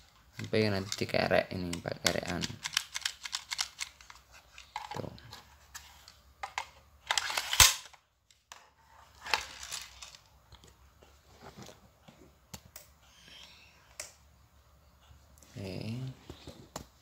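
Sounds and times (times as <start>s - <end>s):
plastic magazine clicking and rattling: 1.7s - 5.0s, 6.4s - 8.0s.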